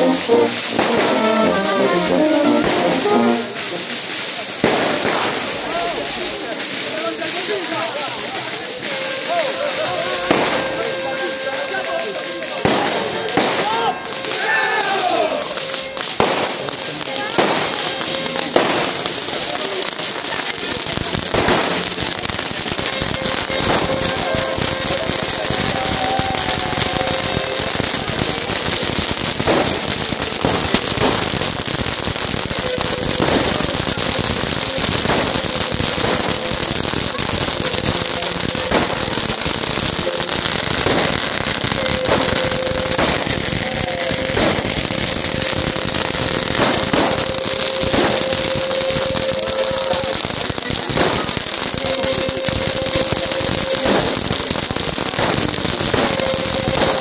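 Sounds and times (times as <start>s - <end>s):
firecracker bangs: 0.0s - 57.0s
firecrackers crackling: 0.0s - 57.0s.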